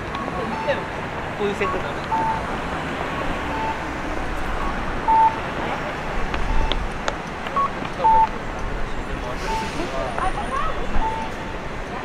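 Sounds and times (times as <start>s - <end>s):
traffic noise: 0.0s - 12.0s
short electronic beeps: 1.6s - 2.5s, 4.6s - 5.4s, 7.6s - 8.3s, 11.0s - 11.6s.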